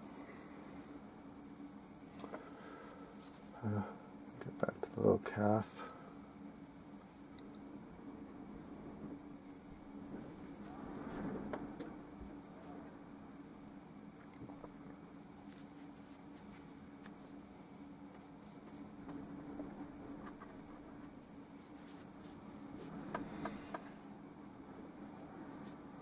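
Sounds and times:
steady low hum: 0.0s - 26.0s
paintbrush scratching on canvas: 15.4s - 17.4s.

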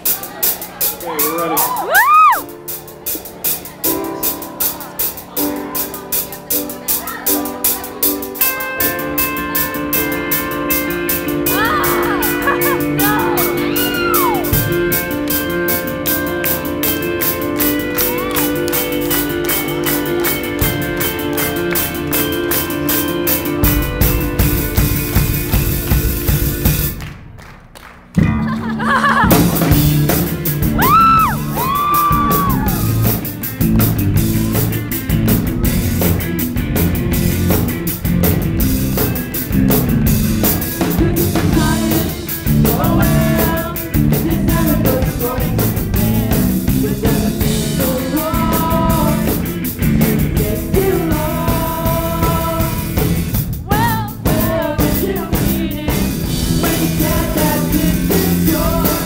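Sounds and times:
rock band playing live: 0.0s - 27.1s, 28.2s - 59.0s
person singing: 30.8s - 33.1s, 40.6s - 59.0s.

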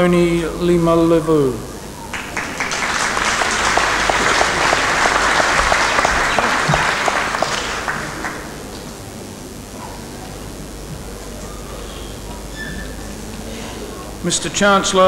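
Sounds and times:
audience applauding: 2.0s - 8.7s
even clapping beat: 2.1s - 8.7s.

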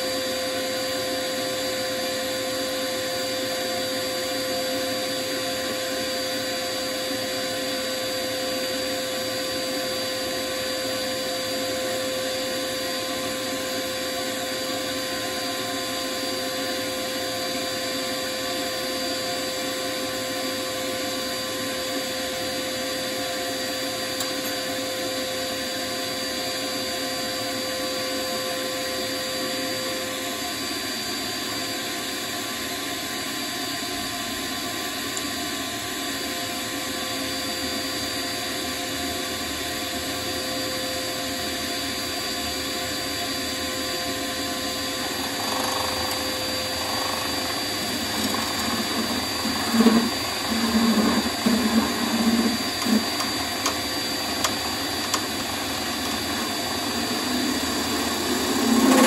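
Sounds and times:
lathe motor whine: 0.0s - 59.0s
tool cutting spinning wood: 43.6s - 59.0s.

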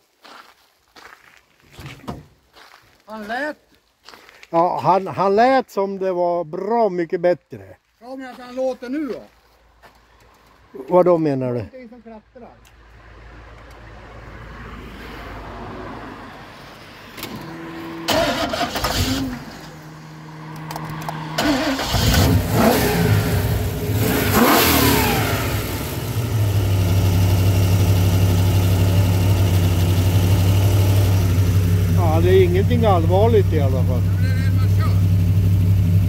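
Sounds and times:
engine revving and idling: 17.2s - 36.0s.

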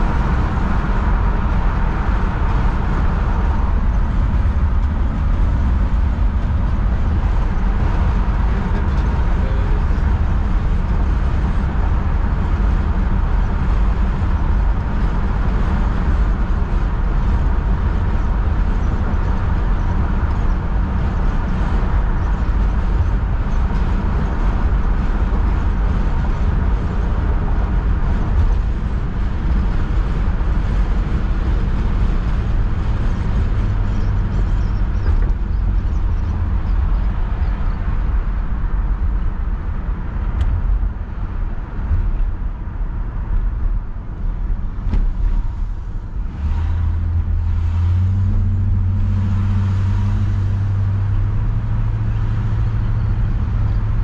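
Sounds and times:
car engine running: 0.0s - 54.0s
tyre and wind noise: 0.0s - 54.0s.

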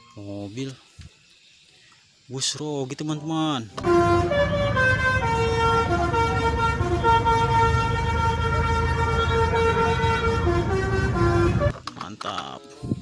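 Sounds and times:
multi-tone musical bus horn: 3.8s - 11.7s.

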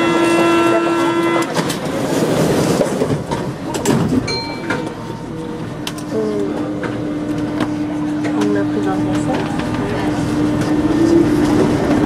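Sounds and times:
train clatter and clicks: 0.0s - 12.0s.

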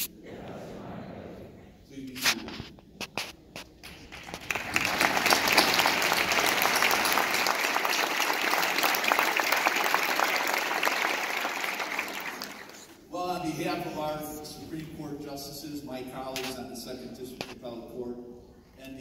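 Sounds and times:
audience applauding: 3.8s - 13.0s.

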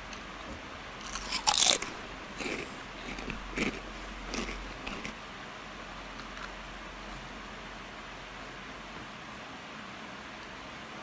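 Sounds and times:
chewing sounds: 1.0s - 5.2s.

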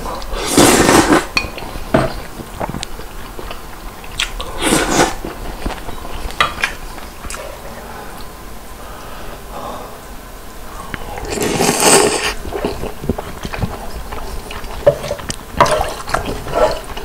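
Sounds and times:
noodle slurping: 0.2s - 1.3s, 4.2s - 5.3s, 11.2s - 17.0s
chewing: 1.1s - 8.3s, 10.9s - 17.0s.

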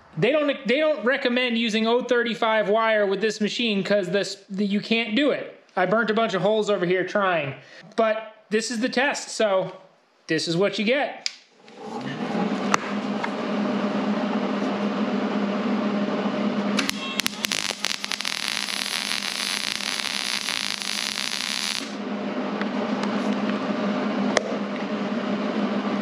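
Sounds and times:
welding arc crackling: 16.8s - 22.0s.

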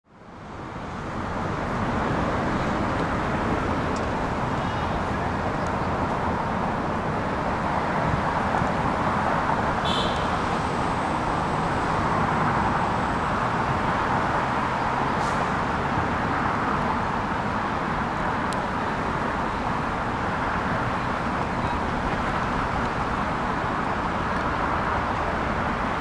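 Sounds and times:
road traffic: 0.0s - 26.0s.

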